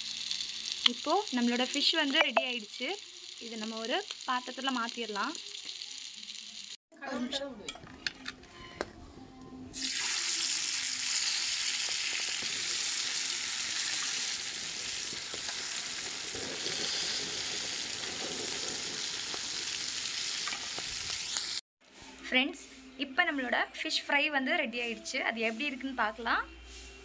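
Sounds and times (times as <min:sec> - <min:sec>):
fish sizzling in hot oil: 0:00.0 - 0:06.8, 0:09.8 - 0:21.6
oil crackling and popping: 0:00.0 - 0:06.8, 0:09.8 - 0:21.6.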